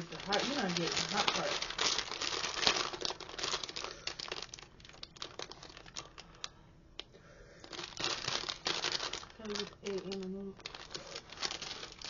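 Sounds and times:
plastic packet crinkling: 0.0s - 6.5s, 7.6s - 12.0s.

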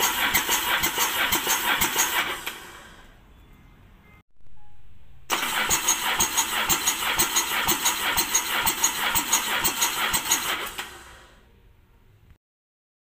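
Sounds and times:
engine cranking by starter: 0.0s - 3.1s, 5.3s - 11.4s.

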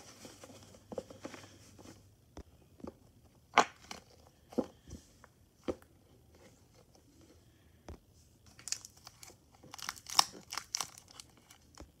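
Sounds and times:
plastic chip bag crinkling: 8.5s - 12.0s.

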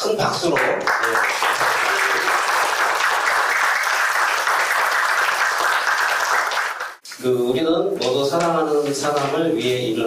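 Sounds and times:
audience applauding: 0.5s - 7.0s.

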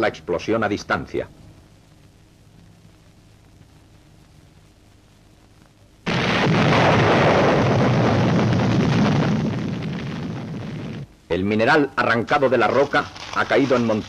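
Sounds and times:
explosive blast: 6.1s - 11.1s.

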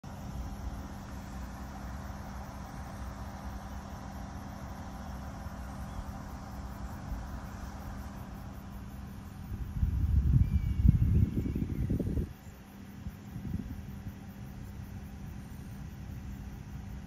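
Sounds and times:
ship engine drone: 0.0s - 10.3s.

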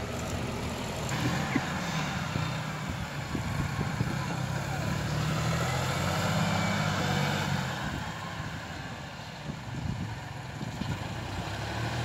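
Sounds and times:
tractor engine humming: 0.0s - 12.0s
wind noise on microphone: 2.7s - 4.3s, 9.4s - 11.4s.

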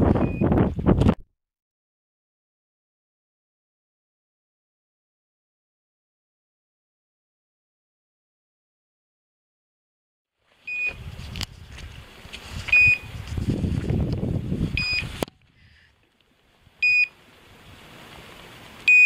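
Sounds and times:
short high beeps: 10.7s - 11.0s, 12.7s - 13.1s, 14.8s - 15.1s, 16.8s - 17.1s.

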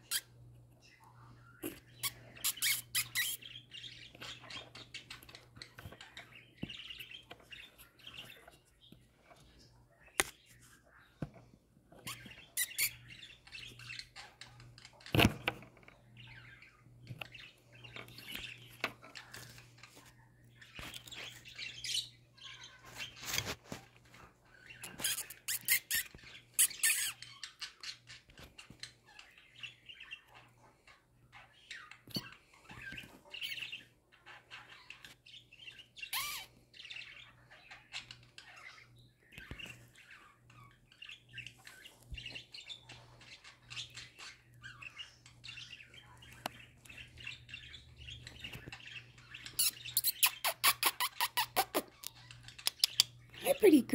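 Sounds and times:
budgerigars chattering: 1.6s - 8.5s, 12.0s - 14.6s, 24.6s - 28.3s, 31.4s - 38.9s, 40.0s - 53.9s.

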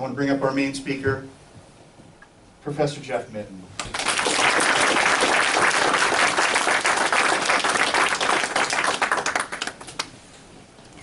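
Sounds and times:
audience applause: 3.8s - 10.1s.

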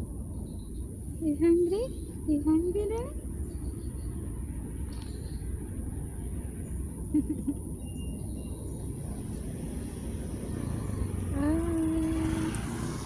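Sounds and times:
distant traffic rumble: 0.0s - 13.0s
long rising low call: 8.4s - 13.0s.

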